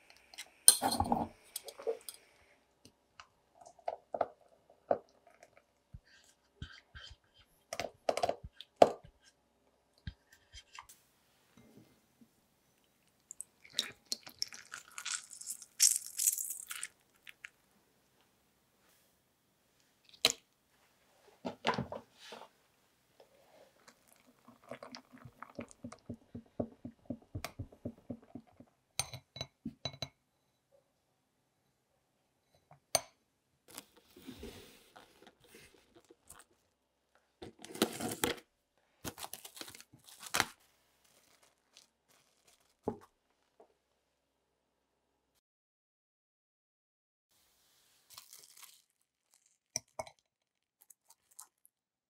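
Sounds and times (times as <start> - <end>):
cling film crinkling: 39.0 - 42.9.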